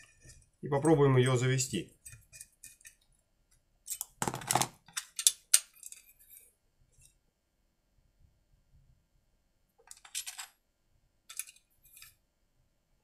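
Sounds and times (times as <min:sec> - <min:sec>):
metal tool clicking and clinking: 0:03.9 - 0:06.4, 0:11.3 - 0:12.2.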